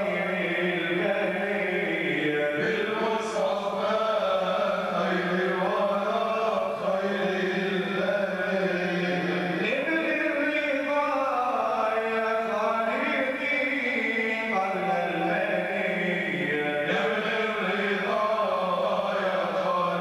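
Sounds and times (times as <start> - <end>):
man chanting into microphone: 0.0 - 20.0.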